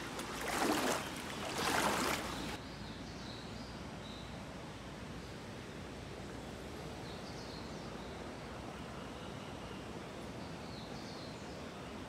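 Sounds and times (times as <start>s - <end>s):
footsteps splashing in water: 0.0s - 2.6s.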